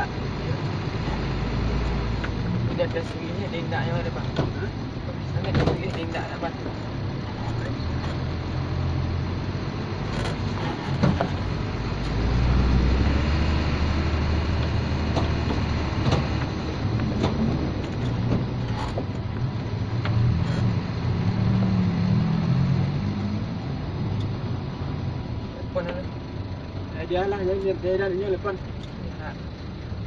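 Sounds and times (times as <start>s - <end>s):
truck diesel engine drone: 0.0s - 30.0s
cab clicks and creaks: 0.6s - 9.1s, 10.0s - 12.7s, 14.4s - 21.0s.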